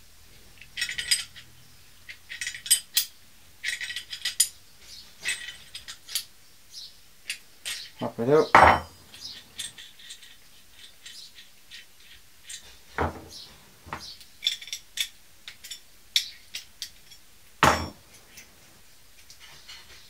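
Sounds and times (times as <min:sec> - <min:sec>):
metal tools clicking and clinking: 0:00.6 - 0:06.3, 0:07.2 - 0:18.6
tool knocks: 0:08.5 - 0:08.9, 0:13.0 - 0:13.3, 0:17.6 - 0:18.0.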